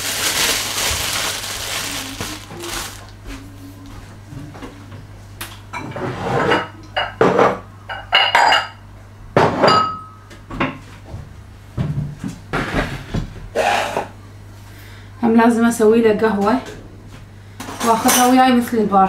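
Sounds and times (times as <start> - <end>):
steady low hum: 0.0 - 6.0.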